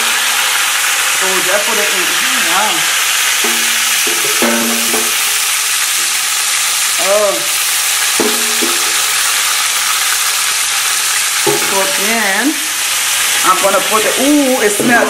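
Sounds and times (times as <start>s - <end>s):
greens frying: 0.0s - 15.0s
onion sizzling in oil in a pot: 0.0s - 15.0s.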